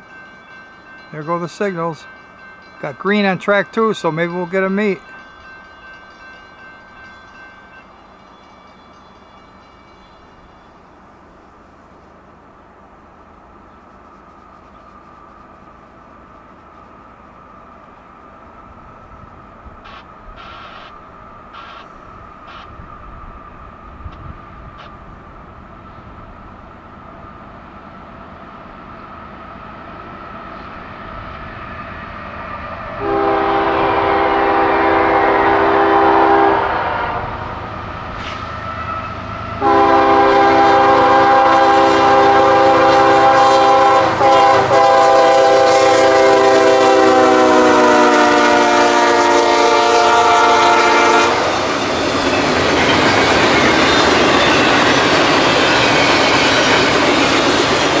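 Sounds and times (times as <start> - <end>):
locomotive air horn blasts: 33.0 - 37.4, 39.6 - 51.5.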